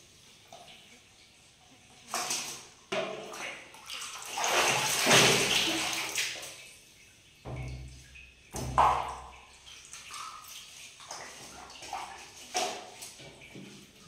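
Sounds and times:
bath water splashing: 2.0s - 14.0s.

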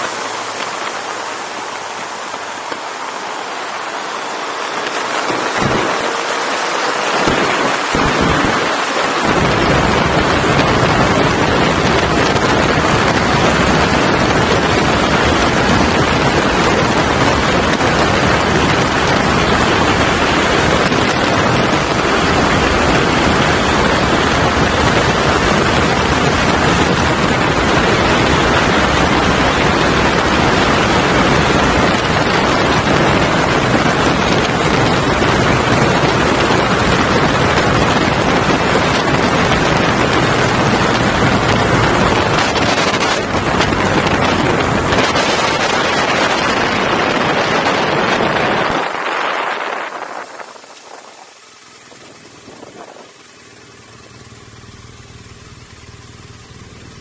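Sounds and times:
wind buffeting microphone: 0.0s - 56.4s
tyre and road noise: 0.0s - 57.0s.

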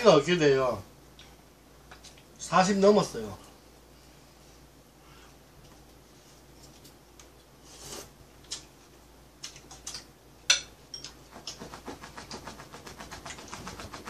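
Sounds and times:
utensils clicking on glass bowl: 9.9s - 11.6s.

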